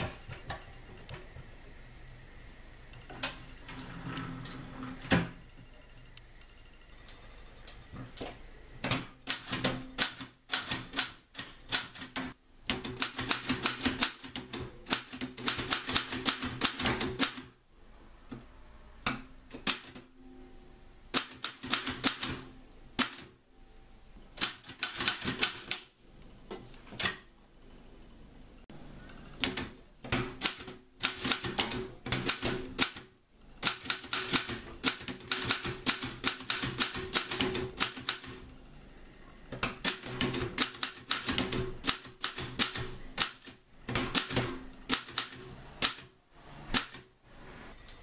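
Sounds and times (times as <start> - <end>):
loud typewriter clack: 9.2 - 17.5, 30.4 - 38.3.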